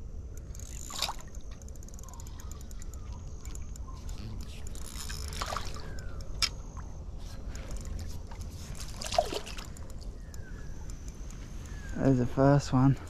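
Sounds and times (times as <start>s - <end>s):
water sloshing and splashing: 0.6s - 10.2s
sharp clicks: 9.2s - 12.9s.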